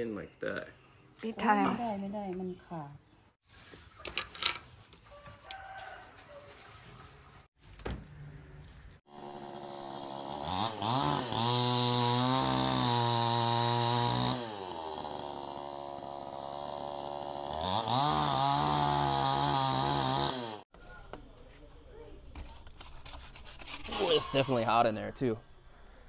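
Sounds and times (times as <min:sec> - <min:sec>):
chainsaw cutting branches: 0:09.1 - 0:20.7.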